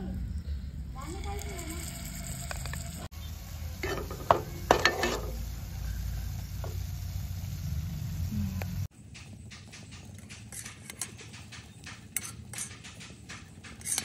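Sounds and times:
paste sizzling in hot oil: 1.0s - 8.9s
spoon scraping and clinking pan: 3.8s - 5.4s, 10.2s - 11.5s, 12.1s - 14.0s.

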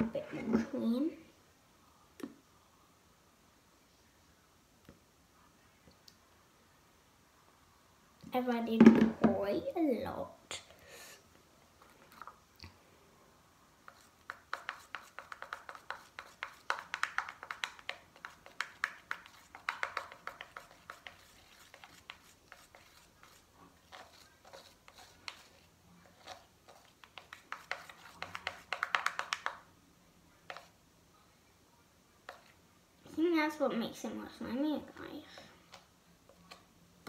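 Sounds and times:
stick stirring slime: 13.8s - 29.7s, 30.5s - 30.8s, 32.2s - 32.6s.

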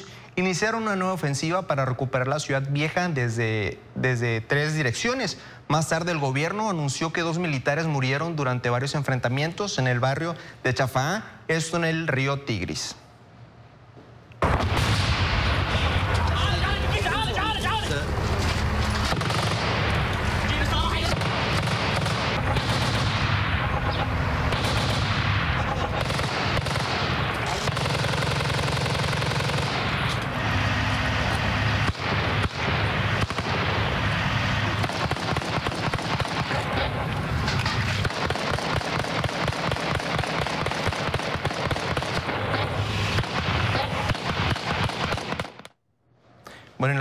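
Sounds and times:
automatic gunfire: 19.0s - 30.1s, 31.8s - 37.0s, 37.8s - 45.7s.

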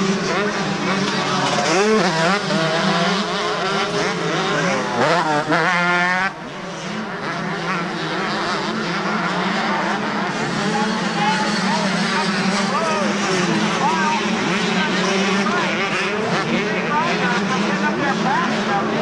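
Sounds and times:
motocross engines revving: 0.0s - 19.0s.

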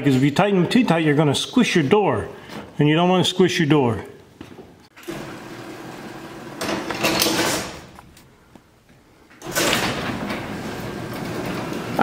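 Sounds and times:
garage door opener running: 4.9s - 8.0s, 9.4s - 12.0s
garage door rolling on tracks: 4.9s - 8.0s, 9.4s - 12.0s.

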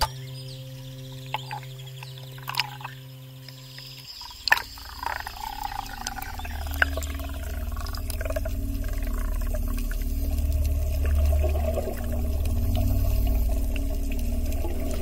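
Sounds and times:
fine rhythmic flutter: 0.0s - 15.0s
muffled underwater rumble: 0.0s - 15.0s
steady low hum: 0.0s - 15.0s
bubbles popping: 2.4s - 2.9s, 4.2s - 15.0s.

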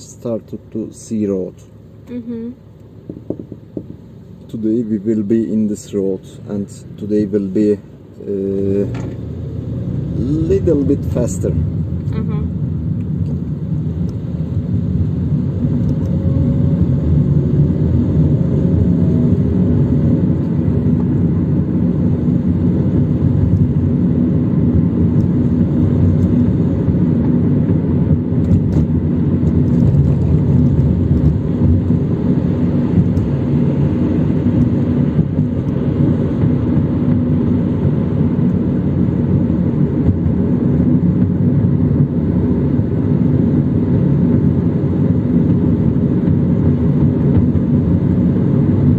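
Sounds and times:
car interior engine and road rumble: 0.0s - 48.9s.

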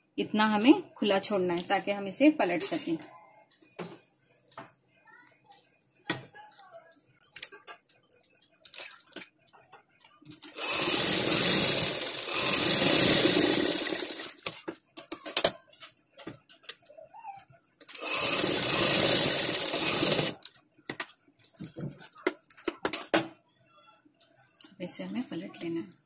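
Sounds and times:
sewing machine stitching: 10.4s - 14.6s, 17.9s - 20.4s.

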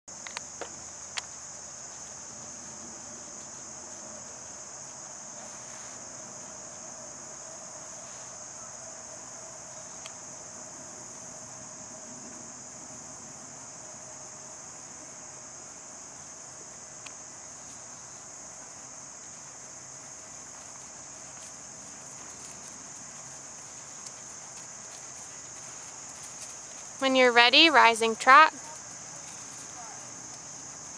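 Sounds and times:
high-pitched insect trill: 0.1s - 30.9s.

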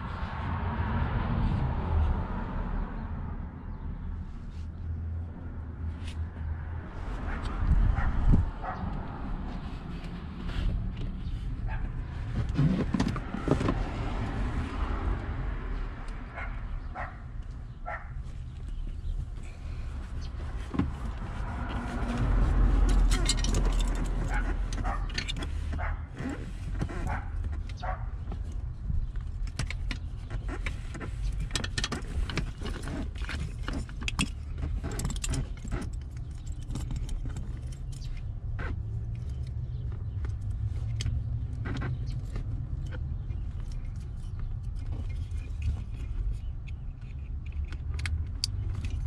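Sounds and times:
plastic connectors clicking and rattling: 42.8s - 49.0s.

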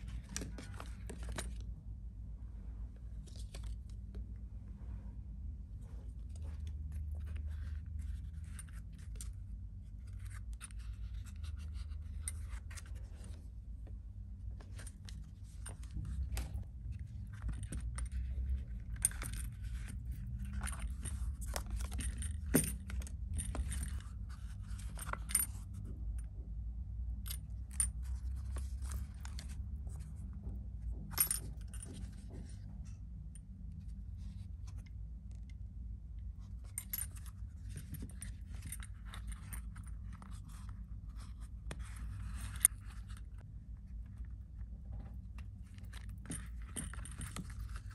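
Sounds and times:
steady low hum: 0.0s - 47.9s
metal buckle clicking and jingling: 17.3s - 25.8s, 31.1s - 32.6s, 45.8s - 47.9s.

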